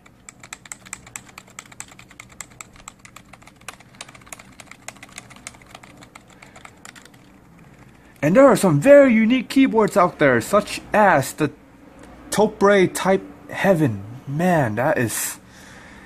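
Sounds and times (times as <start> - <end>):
fast typing on a keyboard: 0.0 - 8.2.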